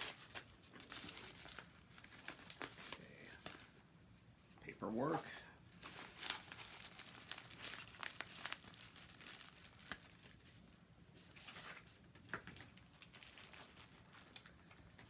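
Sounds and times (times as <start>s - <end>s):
paper mailer and plastic rustling: 0.0s - 3.8s, 5.8s - 10.6s
light crackles: 12.1s - 15.0s.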